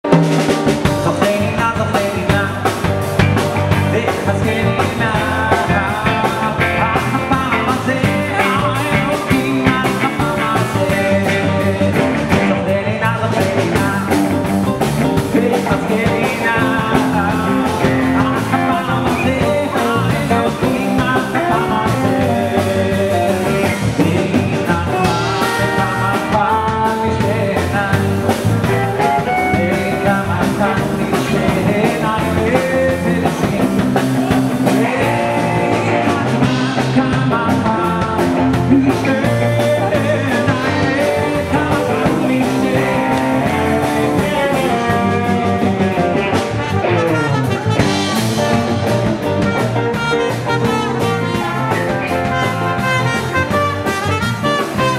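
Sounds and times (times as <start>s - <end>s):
drum kit: 0.0s - 54.9s
electric bass: 0.0s - 54.9s
electric guitar: 0.0s - 54.9s
keyboard: 0.0s - 54.9s
man singing into microphone: 0.8s - 54.9s.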